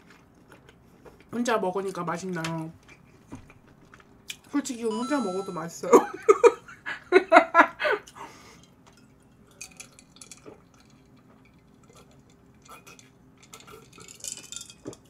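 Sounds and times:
woman laughing: 0:05.8 - 0:08.3.

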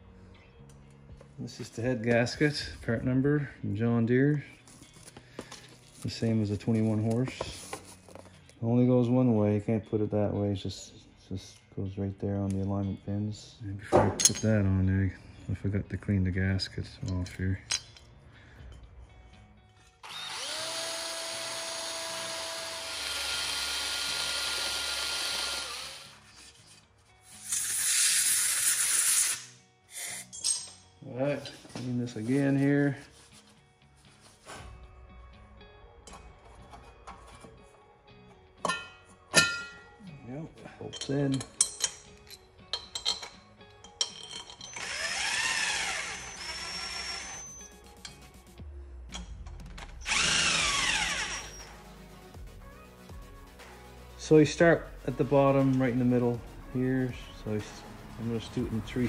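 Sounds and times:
electric drill scouring metal: 0:20.0 - 0:26.3, 0:44.6 - 0:47.7, 0:50.0 - 0:51.8
compressed air hissing: 0:27.4 - 0:30.3.

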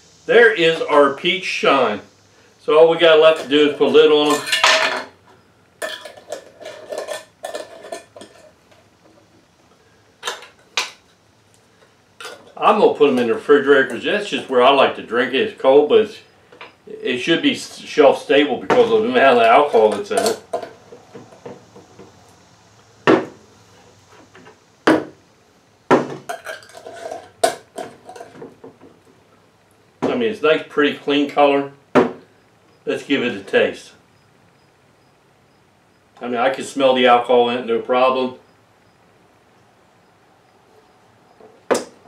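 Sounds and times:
metal lids scraping on glass jars: 0:03.3 - 0:05.1, 0:05.8 - 0:08.8, 0:12.2 - 0:12.6, 0:19.2 - 0:20.8, 0:26.2 - 0:28.4
metal lids clinking on glass: 0:03.3 - 0:05.2, 0:05.8 - 0:08.6, 0:19.4 - 0:20.7, 0:26.2 - 0:28.4.

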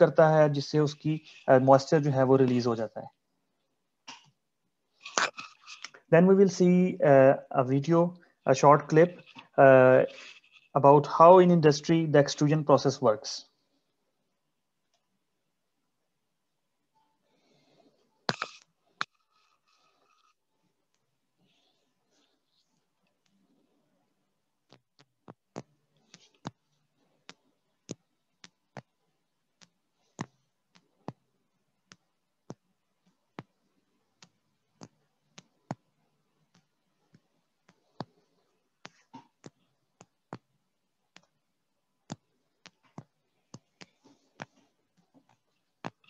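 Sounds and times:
low hiss: 0:00.0 - 0:17.2.

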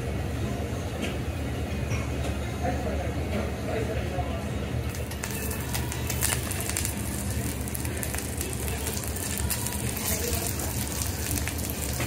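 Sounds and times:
food sizzling on griddle: 0:04.9 - 0:12.0.

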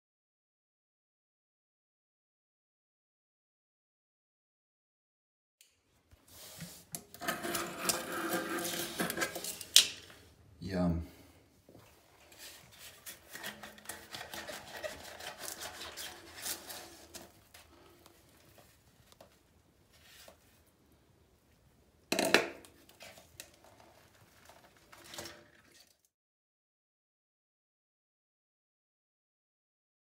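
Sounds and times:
plastic pipe connector scraping: 0:06.4 - 0:10.2, 0:12.2 - 0:19.3.

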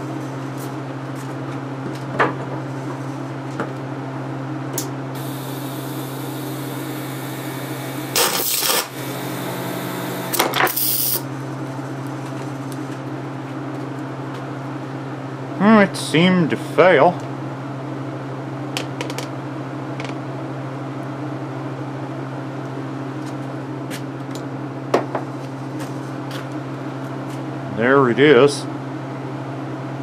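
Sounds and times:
arc welder humming: 0:04.8 - 0:11.5
battery cell crackling: 0:05.2 - 0:11.2
battery cell hissing: 0:05.2 - 0:11.2.

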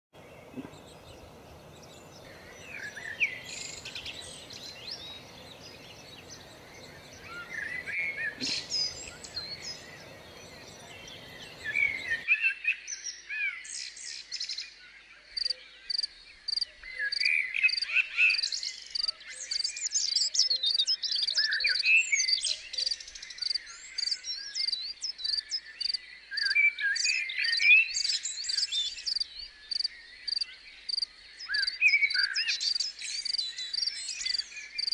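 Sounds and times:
steady background hiss: 0:00.2 - 0:12.2
songbirds chirping: 0:00.2 - 0:34.9.

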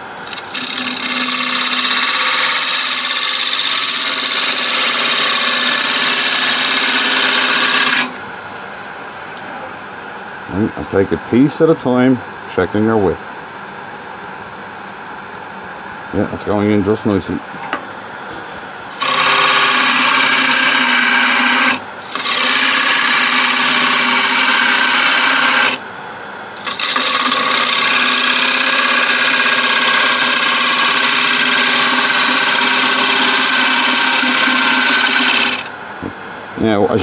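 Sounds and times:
lathe humming: 0:00.0 - 0:11.7, 0:18.7 - 0:36.0
gouge cutting wood hiss: 0:18.9 - 0:25.8, 0:26.6 - 0:35.7.

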